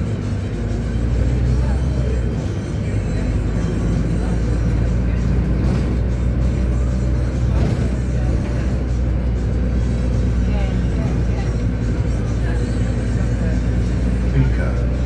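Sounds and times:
background music: 0.0s - 15.0s
bus engine and road rumble: 0.0s - 15.0s.

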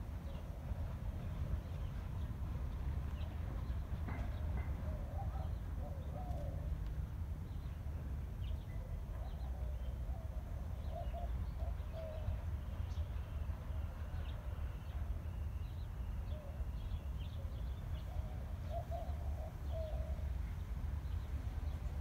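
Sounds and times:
doves cooing: 4.9s - 6.8s, 17.4s - 20.4s.

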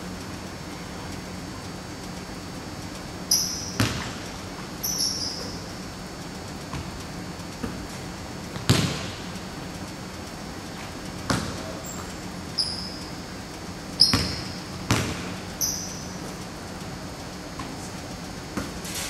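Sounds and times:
sneaker squeaks: 3.3s - 5.8s, 11.3s - 13.2s, 14.0s - 16.3s
basketball bouncing on wooden floor: 3.6s - 4.2s, 6.7s - 6.9s, 8.5s - 9.2s, 11.2s - 12.1s, 14.0s - 16.0s, 18.6s - 18.8s.

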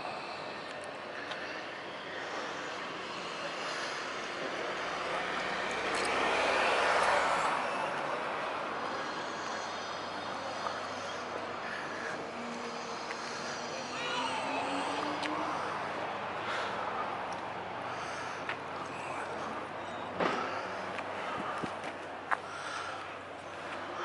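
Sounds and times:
vehicle passing by: 1.2s - 24.0s.

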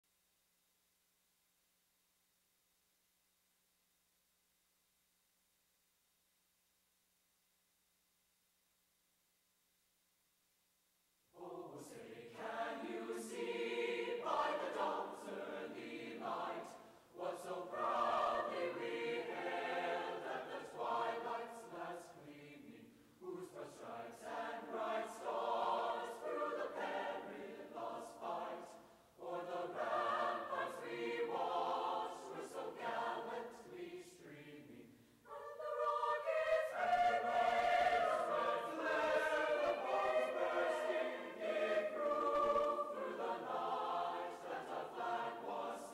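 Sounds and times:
choir singing a cappella: 11.3s - 45.9s.

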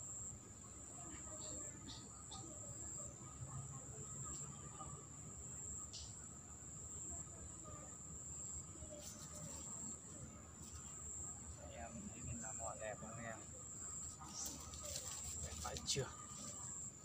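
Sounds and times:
insects shrilling: 12.4s - 17.0s.

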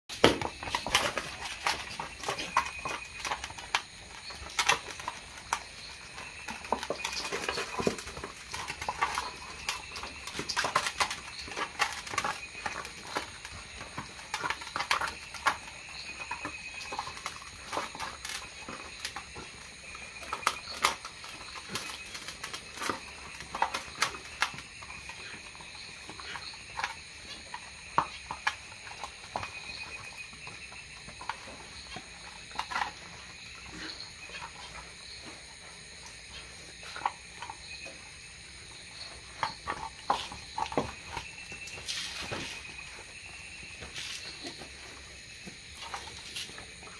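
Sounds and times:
dogs eating and chewing: 0.1s - 46.9s.

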